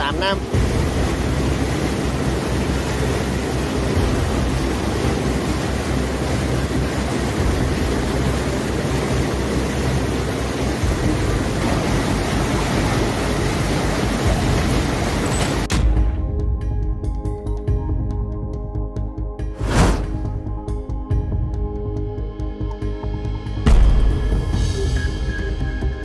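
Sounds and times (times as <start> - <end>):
turbulent water rushing: 0.0 - 15.7.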